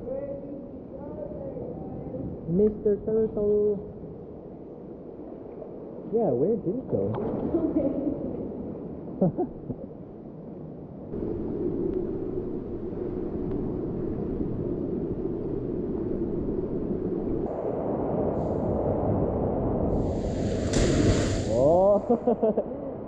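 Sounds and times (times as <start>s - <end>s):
wind: 0.0s - 23.0s
sea water rushing: 13.8s - 23.0s.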